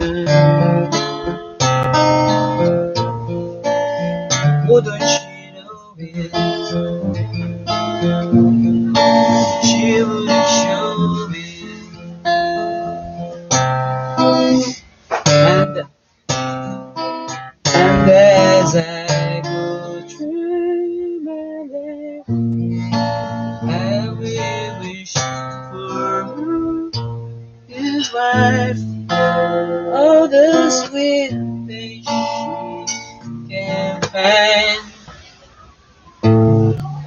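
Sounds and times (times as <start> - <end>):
man singing: 0.0 - 1.4, 4.3 - 13.0, 17.7 - 27.0, 27.7 - 35.1
acoustic guitar ballad: 0.0 - 37.0.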